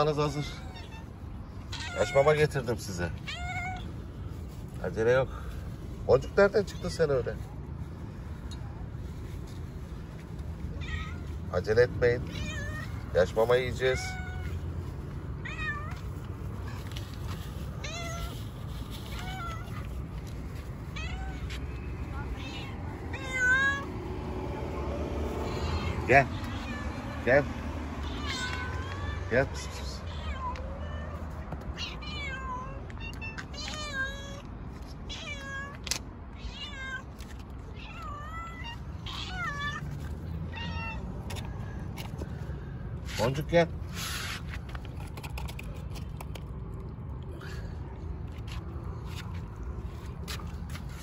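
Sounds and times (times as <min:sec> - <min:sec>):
cat meowing: 0:00.2 - 0:02.6, 0:03.2 - 0:04.0, 0:10.6 - 0:11.4, 0:12.2 - 0:13.1, 0:13.8 - 0:16.2, 0:17.8 - 0:20.0, 0:20.8 - 0:23.9, 0:25.4 - 0:27.3, 0:28.0 - 0:41.2.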